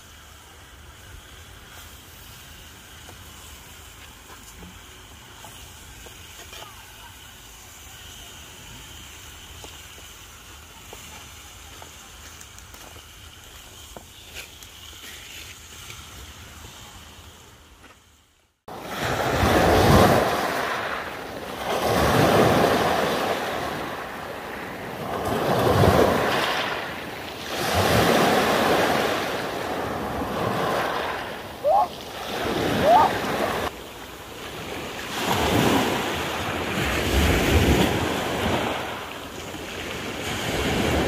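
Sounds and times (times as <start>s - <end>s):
surf washing in: 18.7s - 41.0s.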